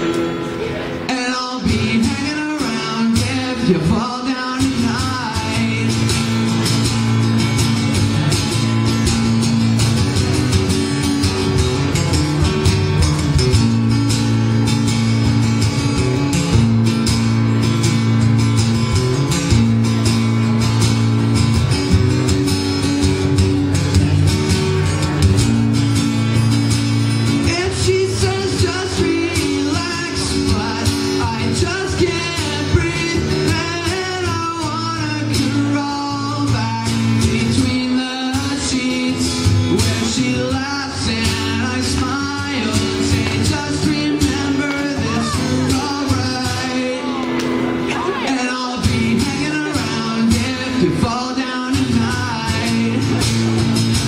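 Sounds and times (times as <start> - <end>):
acoustic guitar strumming: 0.0 - 54.0
boy singing into a microphone: 27.5 - 53.2.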